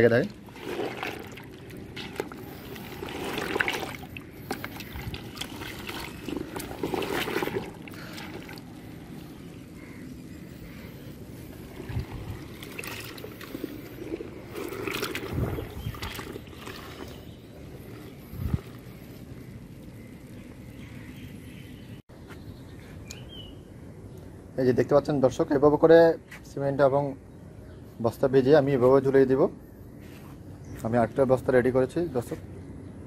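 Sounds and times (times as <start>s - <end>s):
wet squelching and sloshing: 0.0s - 21.2s.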